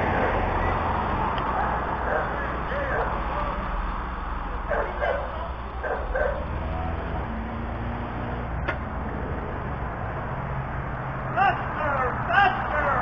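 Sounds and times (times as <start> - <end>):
street noise rumble: 0.0 - 13.0
dog barking: 1.5 - 3.2, 4.6 - 6.5.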